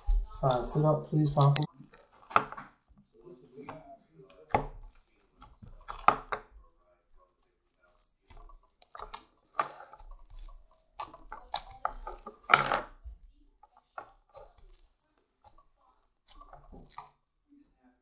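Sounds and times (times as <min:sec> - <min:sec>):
slime crackling and popping: 0:04.4 - 0:17.3.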